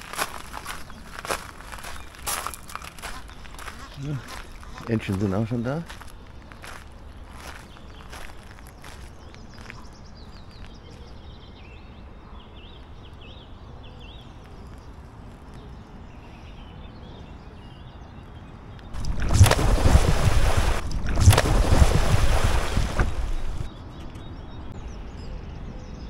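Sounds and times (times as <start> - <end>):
small birds chirping: 0.0 - 26.0
loud rushing noise: 19.0 - 23.7.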